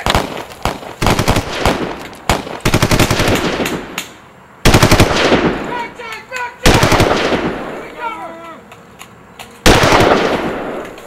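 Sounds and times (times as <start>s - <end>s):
automatic gunfire bursts: 0.0s - 3.8s, 4.7s - 5.5s, 6.6s - 7.7s, 9.7s - 10.8s.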